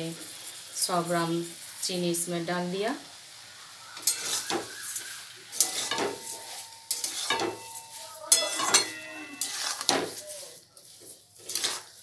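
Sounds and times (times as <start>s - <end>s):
tomatoes sizzling: 0.0s - 12.0s
metal spatula scraping a pan: 4.0s - 12.0s.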